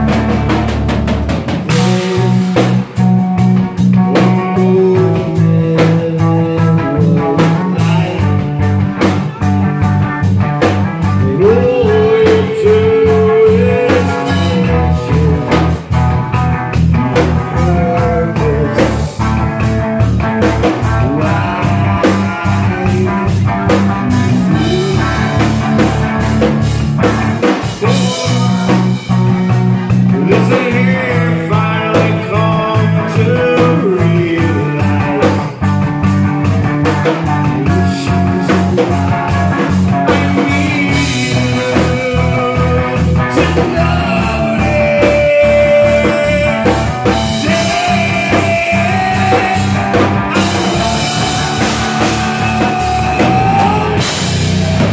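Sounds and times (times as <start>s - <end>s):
drum kit: 0.0s - 54.9s
electric guitar: 0.0s - 54.9s
person singing: 1.7s - 26.3s, 27.4s - 54.9s.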